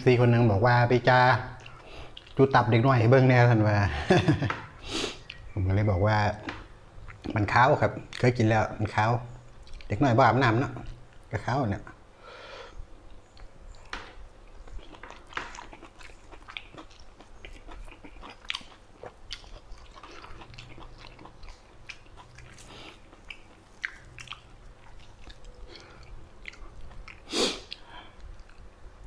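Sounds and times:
wet chewing mouth sounds: 1.6s - 2.4s, 13.2s - 28.7s.

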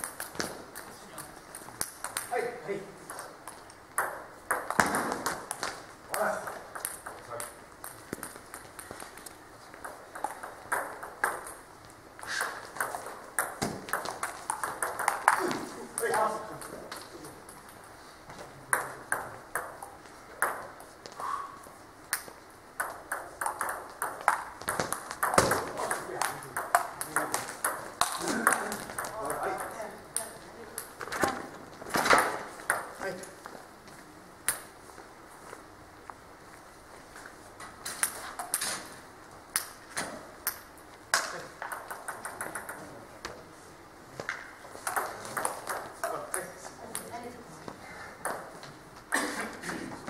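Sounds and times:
table tennis ball clicking: 0.0s - 2.4s, 3.1s - 11.6s, 12.4s - 15.4s, 22.1s - 31.2s, 40.4s - 43.0s, 44.2s - 47.1s.

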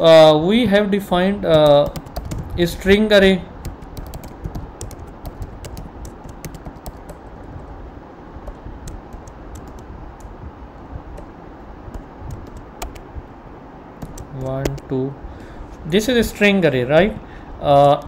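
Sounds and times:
keyboard typing clicks: 1.5s - 2.6s, 3.6s - 7.2s, 8.4s - 10.4s, 11.1s - 11.3s, 11.9s - 13.0s, 14.0s - 14.9s.

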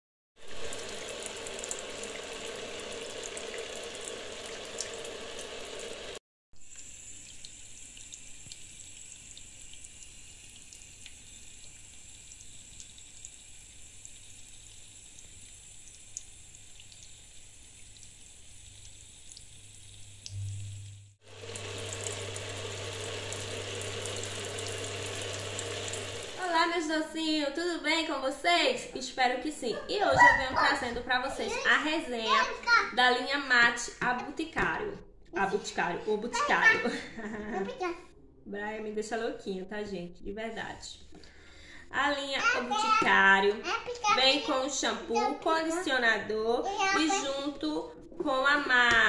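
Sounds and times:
shower water spraying on plastic: 0.4s - 20.4s, 21.3s - 26.6s
low hum: 20.3s - 26.4s.

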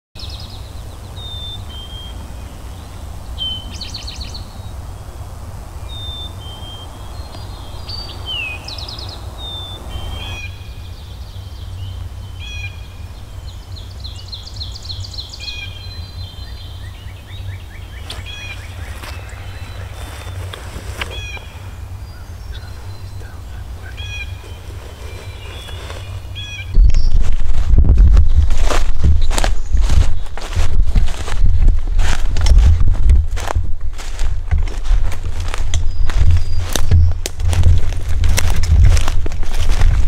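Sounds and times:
songbirds singing: 0.2s - 40.0s
low rumble: 26.0s - 40.0s.

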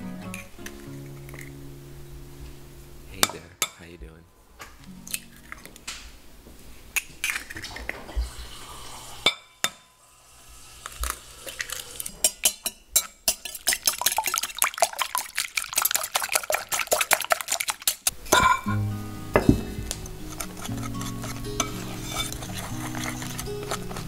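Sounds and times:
eggs cracking: 5.1s - 6.1s, 6.9s - 8.1s, 10.8s - 18.8s, 19.4s - 24.0s
whisk clinking against glass bowl: 12.2s - 18.8s, 20.4s - 24.0s.

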